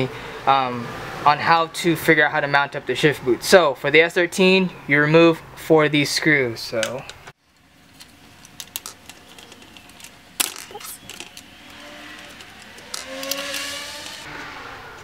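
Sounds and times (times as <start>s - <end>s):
plastic and metal clicks and scrapes: 6.8s - 14.3s.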